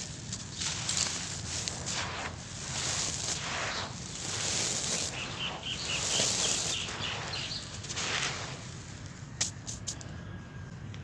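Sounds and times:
dry powder poured by hand: 0.0s - 10.0s
high chirps: 3.7s - 8.4s.

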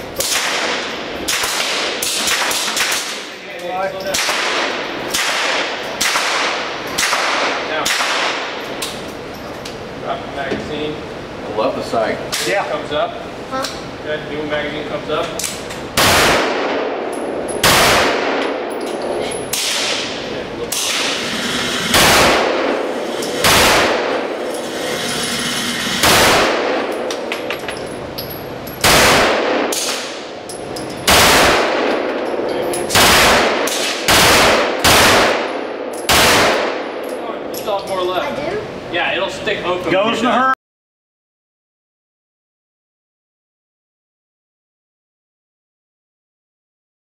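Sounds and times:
gunshots echoing indoors: 0.2s - 3.4s, 4.1s - 8.8s, 16.0s - 27.6s, 28.8s - 37.2s.

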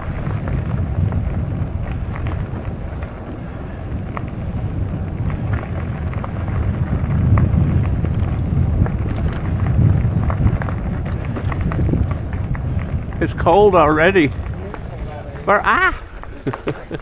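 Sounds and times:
wind buffeting microphone: 0.0s - 17.0s
faint clicks: 4.9s - 6.3s, 8.0s - 9.6s.

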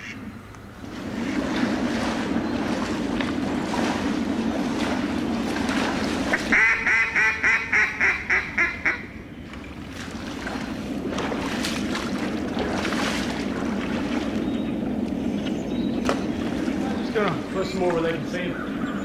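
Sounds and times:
water sloshing from wading: 0.0s - 19.0s
duck call quacks: 6.3s - 9.1s.

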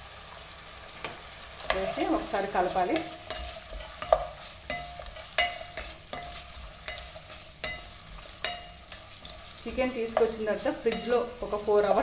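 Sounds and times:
food sizzling in hot oil: 0.0s - 12.0s
utensil knocking and scraping pan: 2.8s - 11.2s.

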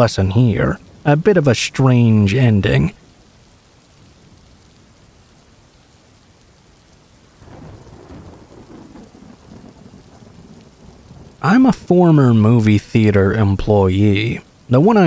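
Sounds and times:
steady rain: 0.0s - 15.0s
thunder rumbling: 7.3s - 14.4s.

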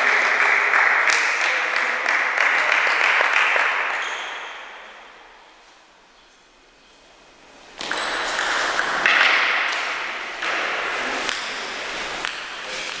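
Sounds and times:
table tennis ball pinging: 7.8s - 13.0s.

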